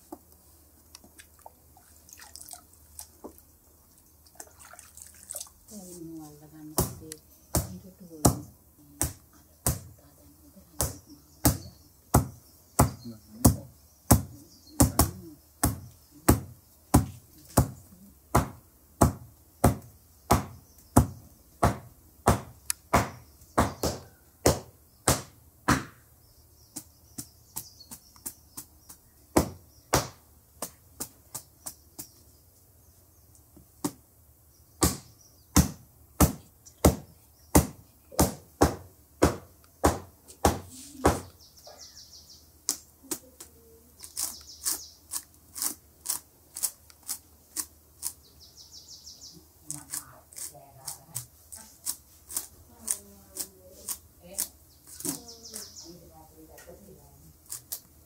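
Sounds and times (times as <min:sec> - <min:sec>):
husk beaten on wooden block: 0:10.8 - 0:26.0, 0:34.8 - 0:41.3.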